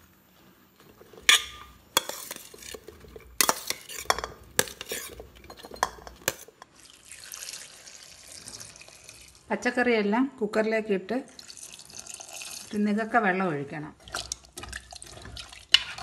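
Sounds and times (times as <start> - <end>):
steel ladle clattering on pot: 1.1 - 6.7.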